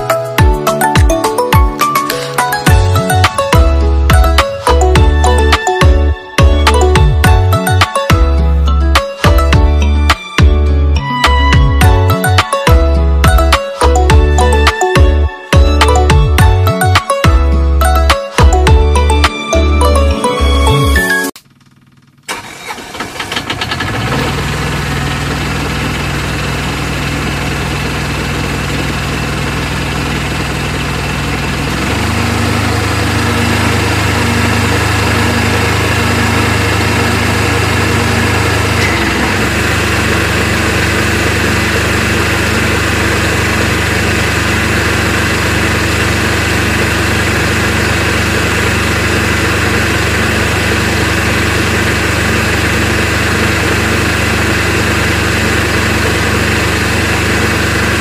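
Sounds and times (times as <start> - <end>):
tractor engine idling: 0.0 - 10.8, 21.4 - 58.0.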